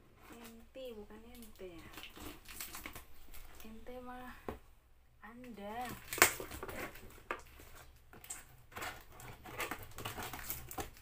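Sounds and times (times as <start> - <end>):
cardboard rustling and scraping: 1.7 - 3.8, 6.0 - 11.0.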